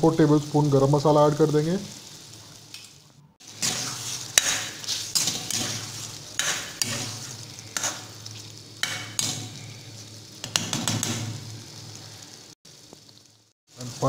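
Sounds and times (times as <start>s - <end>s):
gravy sizzling in oil: 0.0s - 14.0s
spoon clinking and scraping pan: 2.8s - 8.2s, 8.8s - 9.6s.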